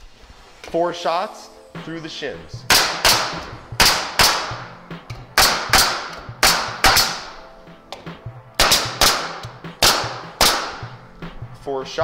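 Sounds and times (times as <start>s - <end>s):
nail gun shots: 2.7s - 4.7s, 5.3s - 7.4s, 8.6s - 10.9s.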